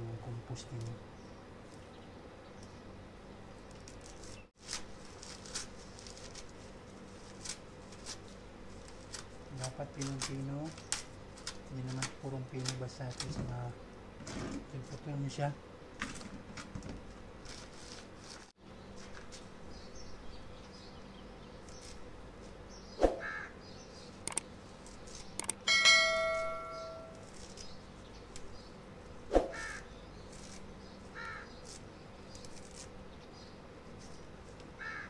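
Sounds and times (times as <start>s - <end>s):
crows cawing: 23.2s - 23.6s, 29.5s - 29.9s, 31.1s - 31.6s, 34.8s - 35.0s
metal struck and ringing: 25.7s - 27.2s.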